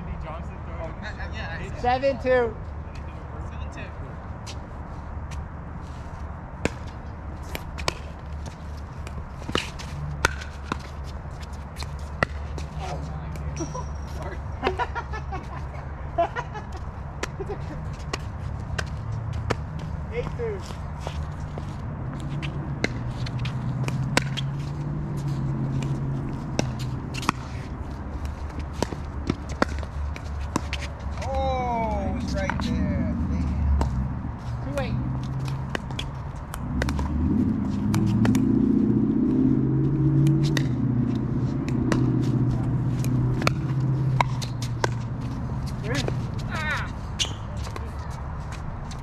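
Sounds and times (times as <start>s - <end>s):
sneakers shuffling on hard court: 4.4s - 14.3s, 16.8s - 31.4s, 39.7s - 49.0s
shoes scuffing on hard court: 17.9s - 31.3s.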